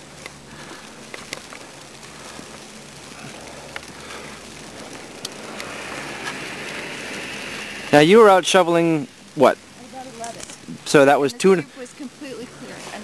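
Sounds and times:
footsteps crunching in snow: 0.0s - 9.0s.

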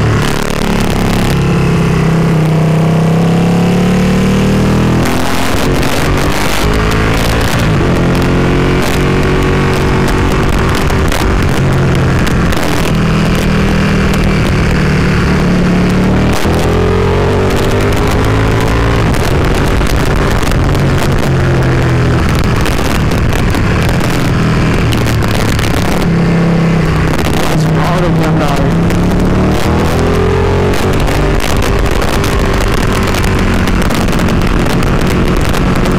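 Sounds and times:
motorcycle engine revving: 0.0s - 35.9s
wind rush on microphone: 0.0s - 35.9s.

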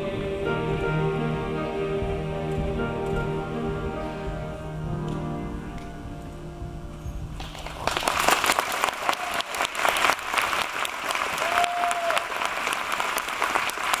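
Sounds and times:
audience applause: 7.4s - 14.0s.

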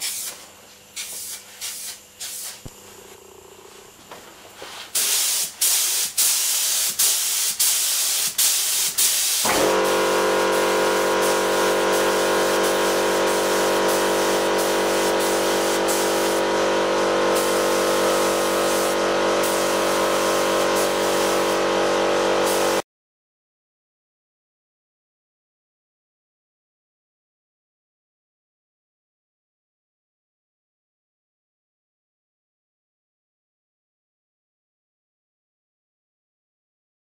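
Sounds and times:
spray gun hissing: 0.0s - 2.8s, 4.7s - 22.8s
air compressor motor humming: 0.0s - 22.8s.

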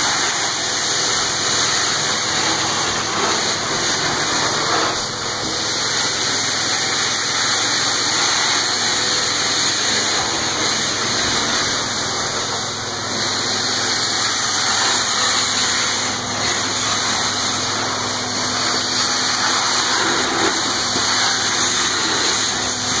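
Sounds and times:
carpet extractor suction rushing: 0.0s - 23.0s.

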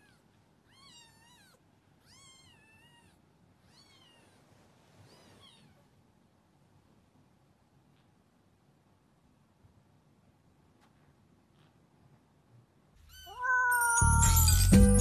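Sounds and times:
kitten meowing: 0.0s - 4.4s, 13.0s - 14.7s.

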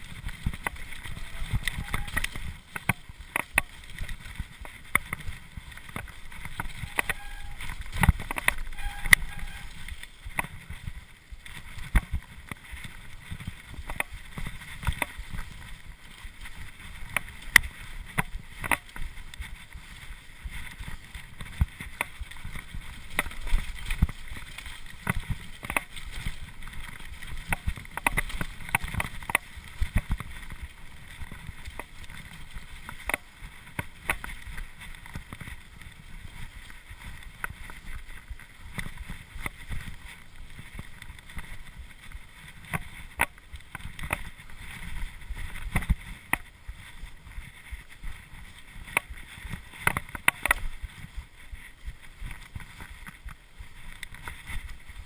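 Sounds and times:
wind on microphone: 0.0s - 3.4s, 4.0s - 11.0s
bike clattering over bumps: 0.0s - 46.6s.

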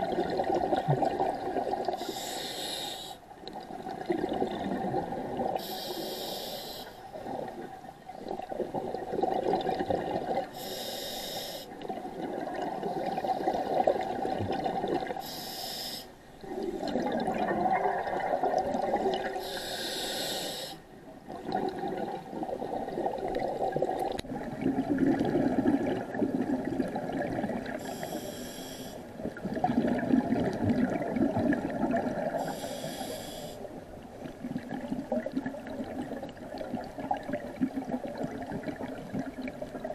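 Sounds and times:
regulator inhale hiss: 2.0s - 3.2s, 5.6s - 7.0s, 10.5s - 11.8s, 15.2s - 16.2s, 19.3s - 20.9s, 27.8s - 29.1s, 32.4s - 33.7s
bubbling exhaled air: 16.4s - 20.6s, 21.3s - 33.6s.

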